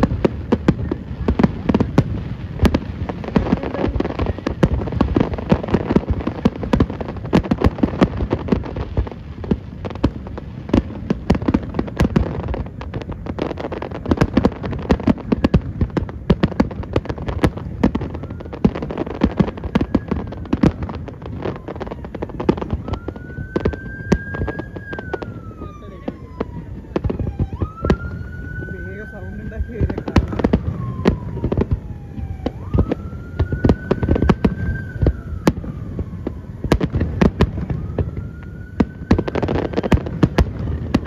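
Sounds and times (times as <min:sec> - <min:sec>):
fireworks bursts and bangs: 0:00.0 - 0:41.0
fireworks crackling: 0:00.0 - 0:41.0.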